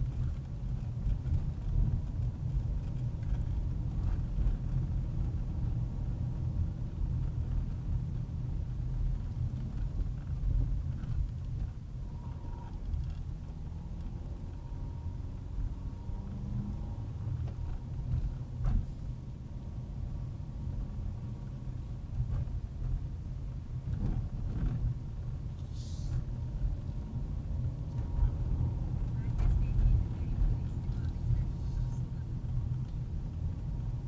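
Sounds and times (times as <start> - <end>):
car engine and road rumble: 0.0 - 34.0
brief hiss: 25.6 - 26.2.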